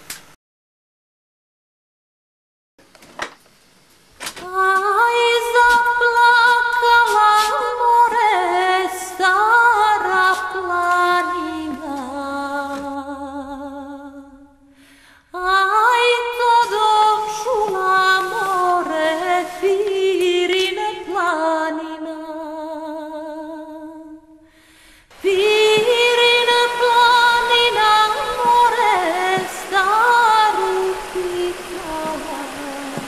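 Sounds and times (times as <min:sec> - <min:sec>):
woman singing unaccompanied: 0:04.4 - 0:14.6, 0:15.4 - 0:24.4, 0:25.2 - 0:33.0.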